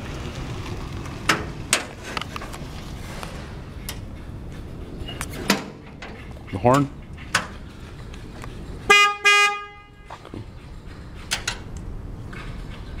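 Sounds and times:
electric cart horn toots: 8.9s - 10.1s.

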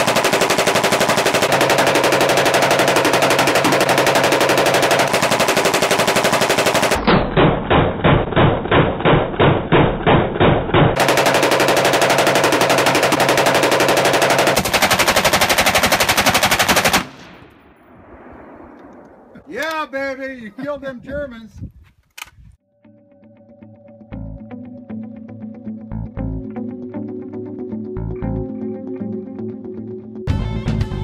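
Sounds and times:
rifle rapid fire: 0.0s - 19.3s.

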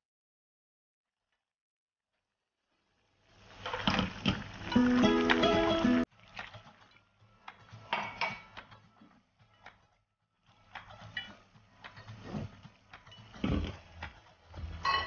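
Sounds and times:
boiling bubbles popping: 3.2s - 8.8s, 10.4s - 15.0s.

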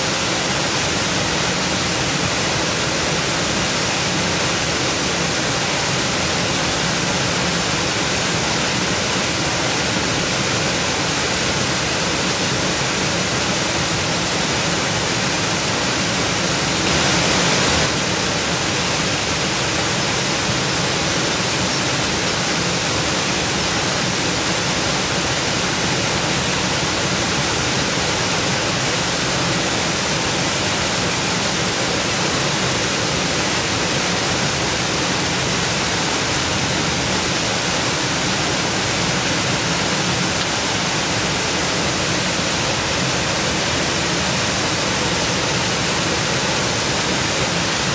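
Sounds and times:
stream rushing over rocks: 0.0s - 47.9s.

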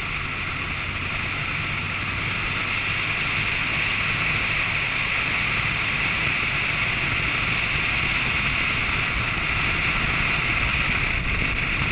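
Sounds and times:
motorcycle engine drone: 0.0s - 11.9s
road noise: 0.0s - 11.9s
wind on microphone: 8.5s - 11.9s.

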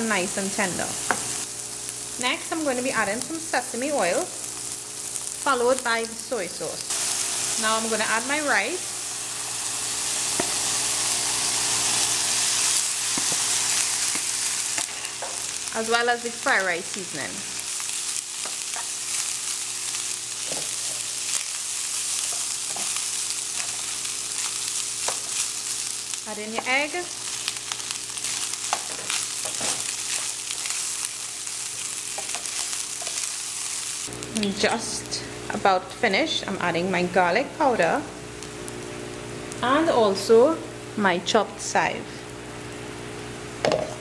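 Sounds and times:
vegetables sizzling in oil: 0.0s - 44.0s
wooden spoon stirring and scraping: 28.2s - 31.1s.

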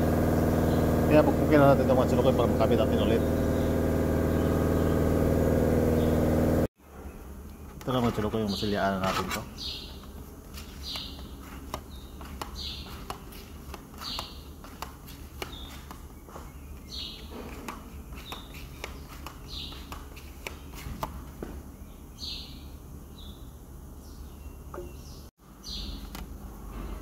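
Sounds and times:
steady low hum: 0.0s - 27.0s
small bird chirping: 7.0s - 26.2s.

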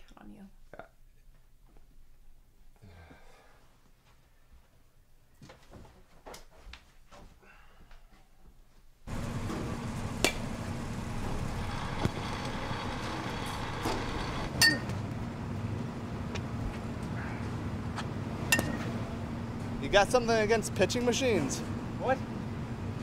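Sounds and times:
steady low hum: 9.1s - 23.0s
baseball bat cracking balls: 10.2s - 10.6s, 18.5s - 19.0s.

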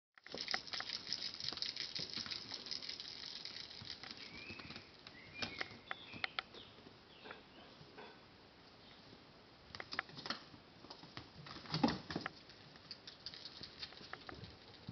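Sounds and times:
kittens' paws pattering: 0.3s - 6.3s, 9.8s - 14.9s
sharp clicks: 9.7s - 10.4s.

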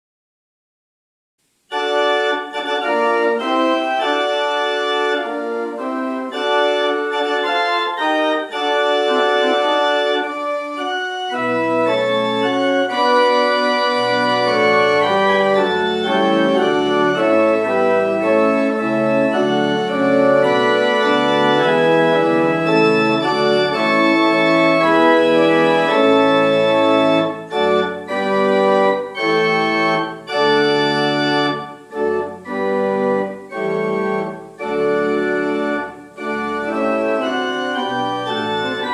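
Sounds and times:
organ playing sustained chords: 1.7s - 38.9s
deep bass notes: 12.1s - 21.6s.

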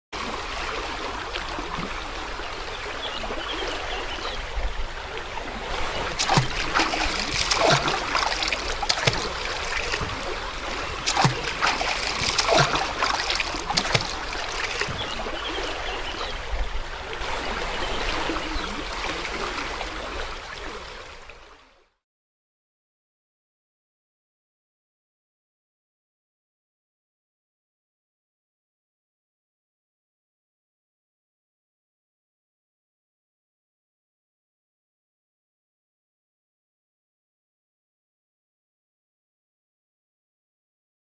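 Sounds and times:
stream water running: 0.2s - 21.9s
person splashing in water: 6.0s - 15.2s.

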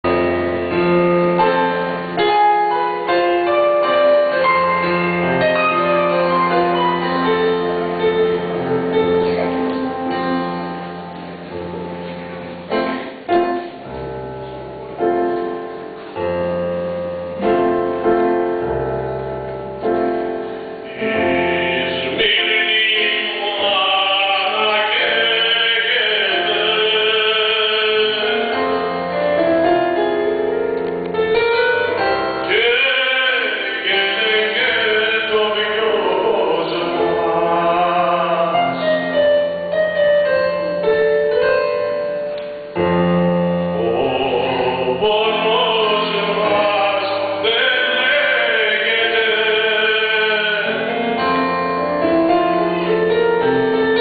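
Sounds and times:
keyboard accompaniment: 0.0s - 54.0s
mixed choir singing: 20.9s - 28.2s.

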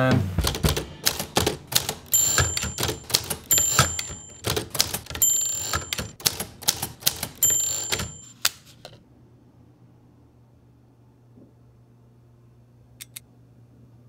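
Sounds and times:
typewriter carriage bell dinging: 0.4s - 8.5s
typewriter keys striking: 0.4s - 8.7s.

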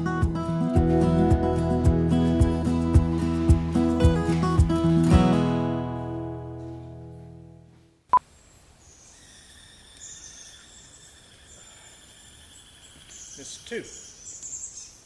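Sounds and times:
acoustic guitar music: 0.0s - 7.8s
insects chirring: 8.4s - 15.0s
bird calls: 8.8s - 15.0s.

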